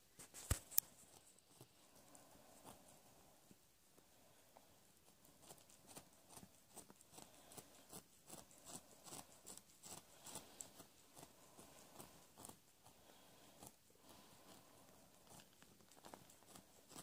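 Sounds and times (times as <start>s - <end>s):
kittens suckling wet clicks: 5.7s - 12.7s, 13.6s - 17.0s.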